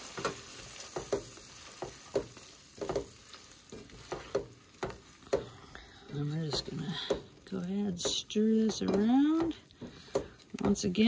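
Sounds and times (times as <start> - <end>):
fish sizzling in butter: 0.0 - 11.0
metal tongs scraping a pot: 6.1 - 11.0.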